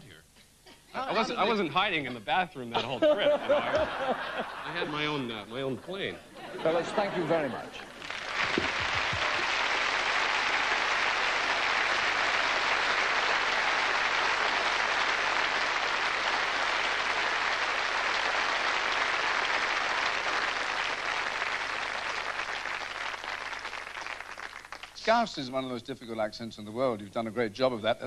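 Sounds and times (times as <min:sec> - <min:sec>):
audience applauding: 0:07.0 - 0:25.4.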